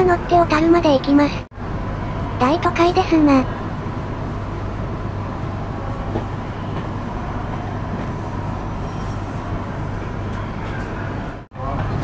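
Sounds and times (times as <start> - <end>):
train hum: 0.0 - 12.0
train wheels rumbling on rail: 3.6 - 12.0.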